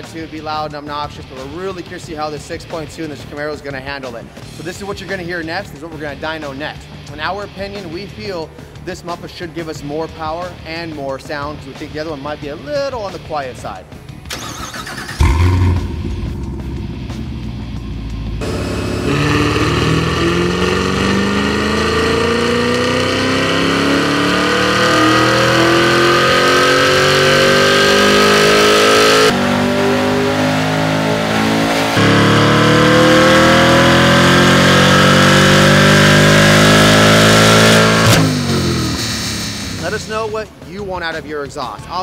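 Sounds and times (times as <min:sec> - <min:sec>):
car engine revving hard: 0:14.3 - 0:40.1.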